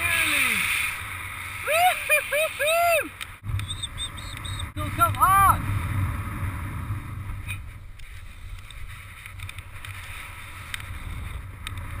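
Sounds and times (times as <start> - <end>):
wind rushing over microphone: 3.0 - 12.0.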